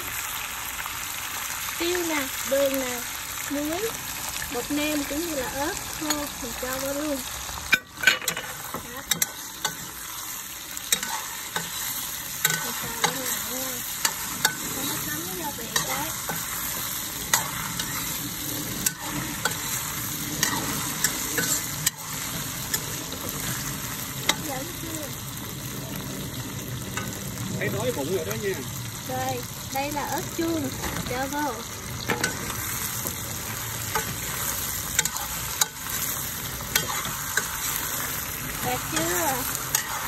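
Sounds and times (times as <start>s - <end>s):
prawns sizzling in a wok: 0.0s - 40.0s
metal spoon scraping a pan: 7.6s - 24.7s, 32.0s - 40.0s.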